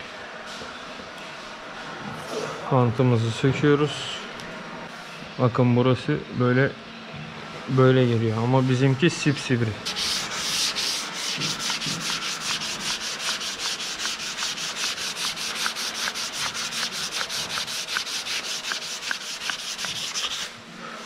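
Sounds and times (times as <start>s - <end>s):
sandpaper rubbing on filler: 9.8s - 20.6s.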